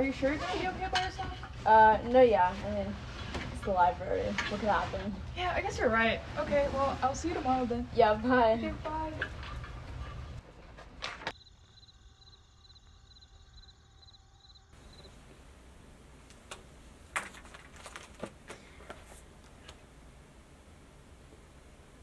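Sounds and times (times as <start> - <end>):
objects handled on a table: 16.4 - 19.9.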